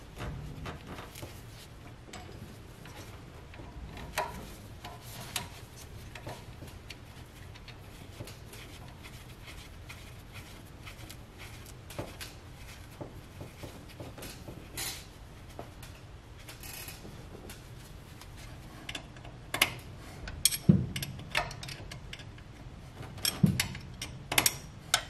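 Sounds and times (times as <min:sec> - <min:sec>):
steady low hum: 0:00.0 - 0:25.0
metal clicks and taps: 0:18.9 - 0:22.5, 0:23.2 - 0:25.0.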